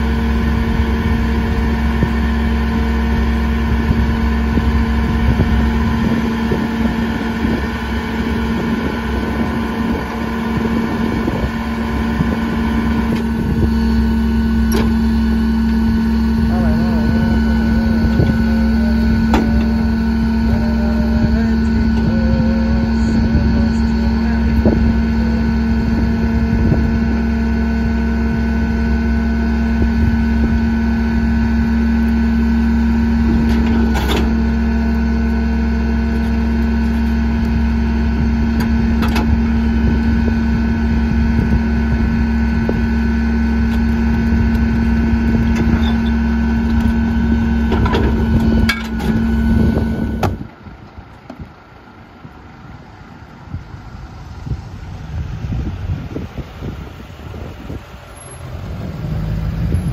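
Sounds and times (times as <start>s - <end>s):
garbage truck engine hum: 0.0s - 59.9s
trash and metal clanking: 19.1s - 19.9s, 33.4s - 34.5s, 47.6s - 49.4s.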